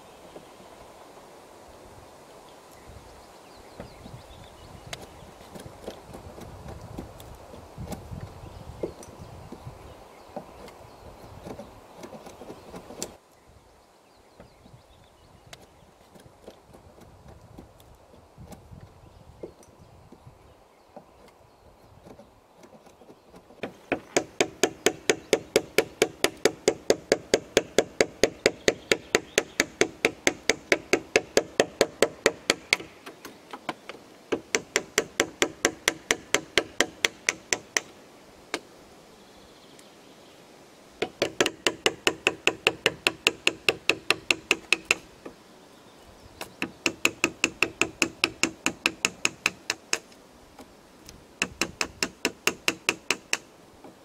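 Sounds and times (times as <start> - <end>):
hammer striking steel chisel: 41.0 - 45.0, 46.7 - 50.0, 51.4 - 53.4.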